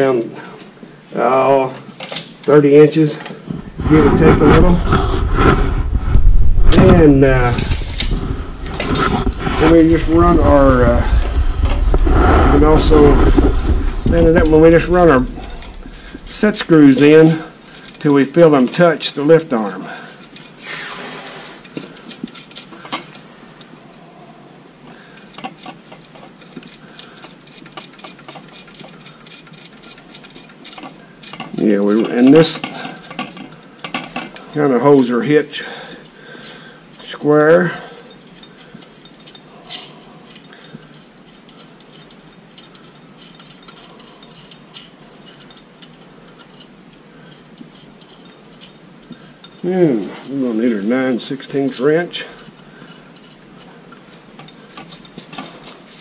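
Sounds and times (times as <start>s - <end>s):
metal hardware clicking and rattling: 1.8s - 3.5s, 14.0s - 20.6s, 21.6s - 23.8s, 25.1s - 56.0s
metallic clicks of set screws: 1.9s - 2.5s.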